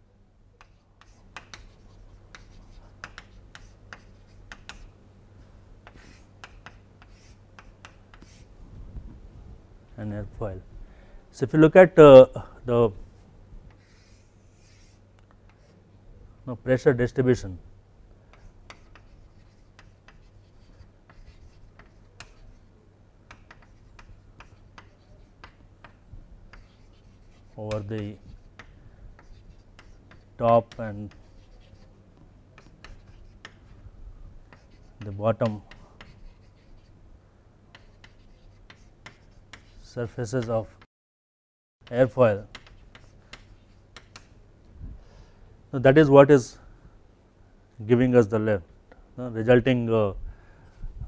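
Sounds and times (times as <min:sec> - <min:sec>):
low steady hum: 0:00.0 - 0:40.8, 0:41.8 - 0:51.0
chalk writing on chalkboard: 0:00.6 - 0:04.9, 0:05.8 - 0:08.5, 0:13.7 - 0:15.8, 0:18.3 - 0:22.7, 0:23.3 - 0:33.8, 0:34.4 - 0:36.9, 0:37.7 - 0:40.8, 0:42.4 - 0:44.4.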